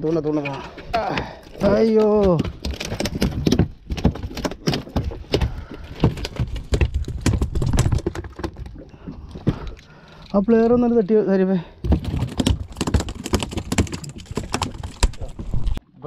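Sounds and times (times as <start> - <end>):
knocks and clatter on boat deck: 11.8 - 15.5.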